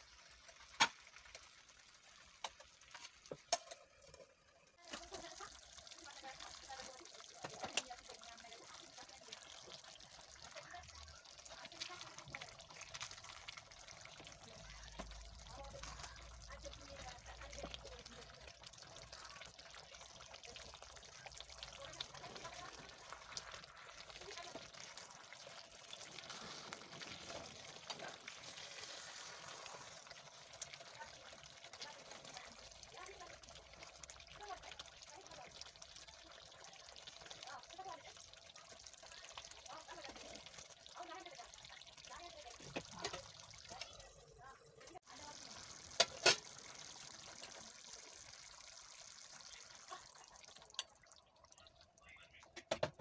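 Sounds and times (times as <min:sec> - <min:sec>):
stew sloshing while stirred: 0:04.8 - 0:44.1.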